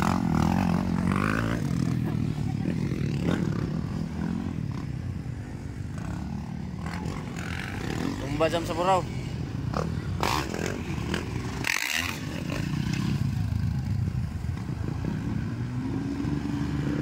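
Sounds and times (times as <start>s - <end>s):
dirt bike engine revving: 0.0s - 2.2s, 5.9s - 13.6s.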